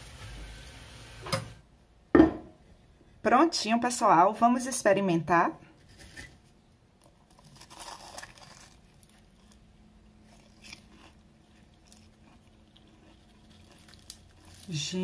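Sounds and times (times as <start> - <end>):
chewing crunches: 7.0 - 14.8
crunch of biting fried food: 7.2 - 14.7.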